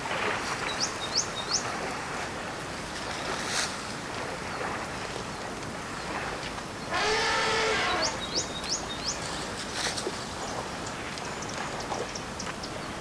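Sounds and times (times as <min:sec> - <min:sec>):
rising bird whistles: 0:06.9 - 0:08.5
faint high buzzes: 0:06.9 - 0:08.7.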